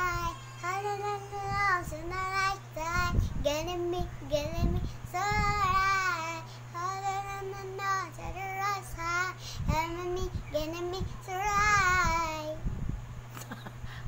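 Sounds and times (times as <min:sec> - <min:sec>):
girl singing: 0:00.0 - 0:12.7
breaths: 0:09.4 - 0:09.7.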